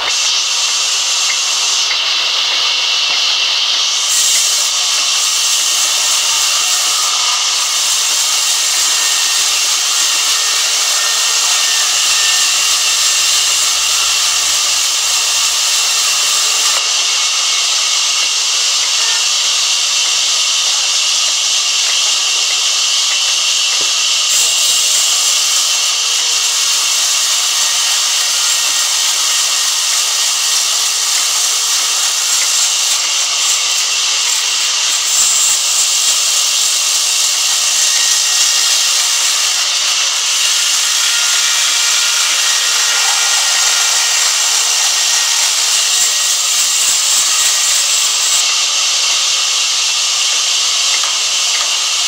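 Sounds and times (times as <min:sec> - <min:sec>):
band saw cutting wood: 0:00.0 - 0:52.0.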